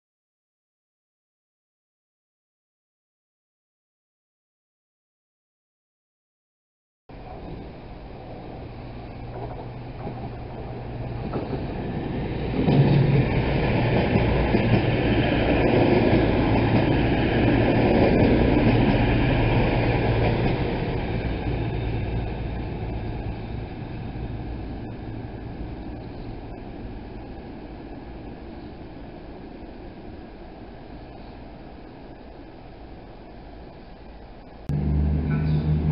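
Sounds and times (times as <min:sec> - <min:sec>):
train wheels rumbling on track: 0:07.2 - 0:35.9
diesel engines humming: 0:34.7 - 0:35.9.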